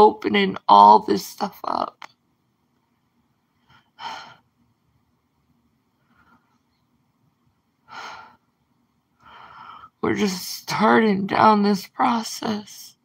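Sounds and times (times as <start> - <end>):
woman speaking: 0.0 - 2.1, 10.0 - 13.0
woman breathing: 3.5 - 4.5, 5.9 - 6.8, 7.8 - 10.0.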